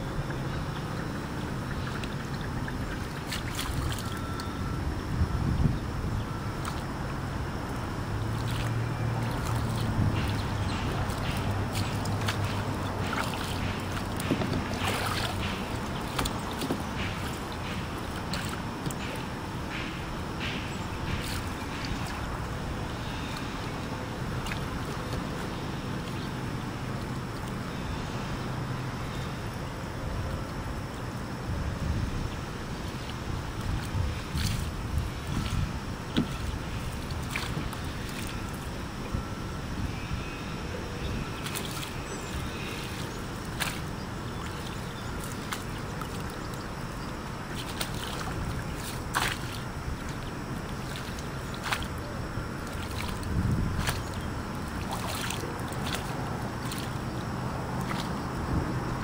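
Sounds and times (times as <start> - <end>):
steady low rumble: 0.0 - 59.0
water noise: 0.0 - 59.0
wind: 0.0 - 59.0
oar strokes: 47.4 - 57.2.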